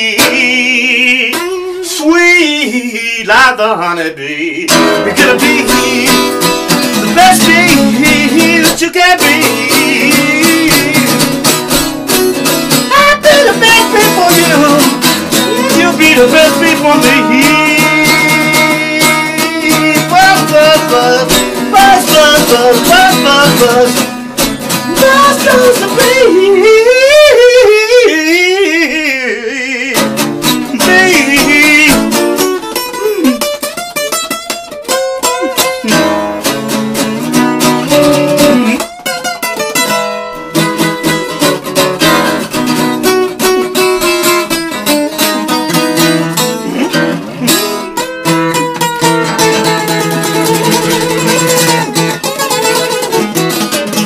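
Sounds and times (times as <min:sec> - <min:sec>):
wordless vocal line: 0:00.0 - 0:11.6, 0:12.8 - 0:32.4, 0:46.4 - 0:48.0
acoustic guitar strummed: 0:00.0 - 0:54.0.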